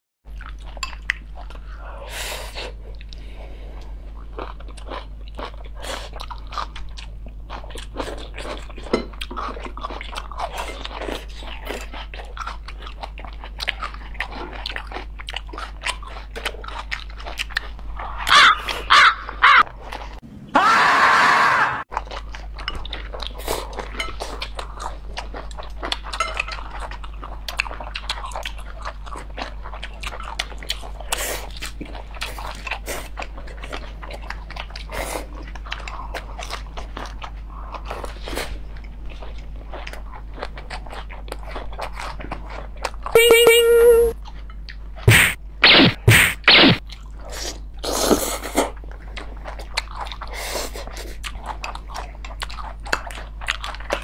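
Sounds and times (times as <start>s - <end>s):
people chewing crunchy vegetables: 0.3s - 20.2s, 21.9s - 54.0s
steady low hum: 45.0s - 46.8s
loud sharp bursts: 45.1s - 46.8s.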